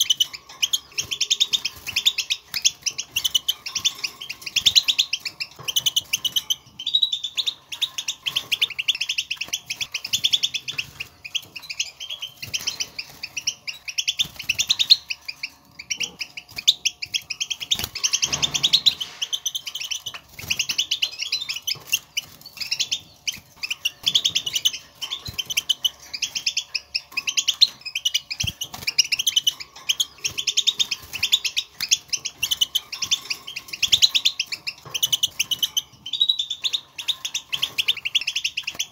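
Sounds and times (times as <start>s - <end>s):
finch twittering chatter: 0.0s - 38.9s.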